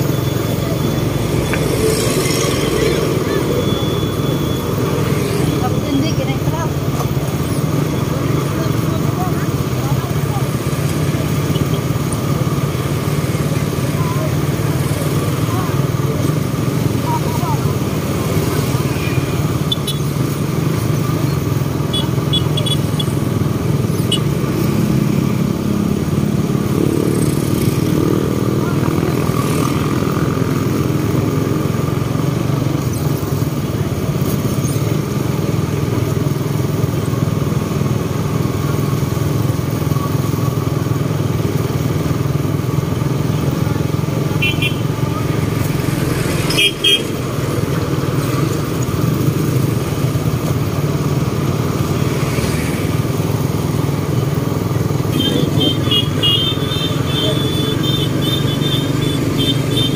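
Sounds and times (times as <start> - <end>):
short high beeps: 0.0 - 5.8
motorcycle engines running: 0.0 - 59.9.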